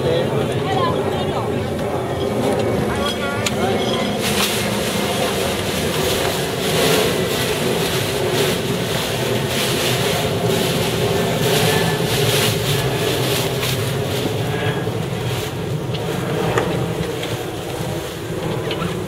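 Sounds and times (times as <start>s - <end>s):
water rushing along hull: 0.0s - 19.0s
wind buffeting microphone: 0.0s - 19.0s.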